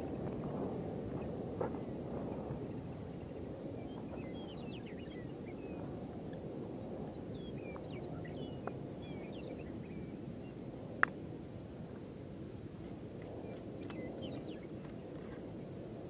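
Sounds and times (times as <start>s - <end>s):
low outdoor rumble: 0.0s - 16.0s
small birds chirping: 2.6s - 5.9s, 7.1s - 10.6s, 12.8s - 15.4s.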